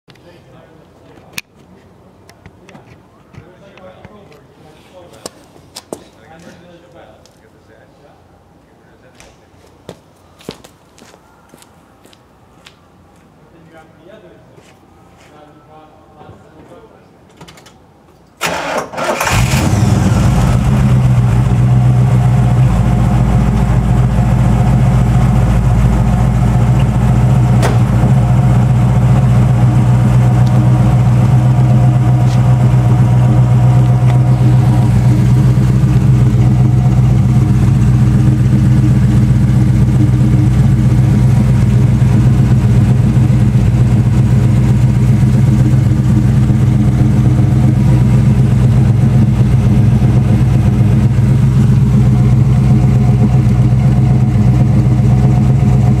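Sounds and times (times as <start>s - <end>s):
car exhaust idling: 19.2s - 56.0s.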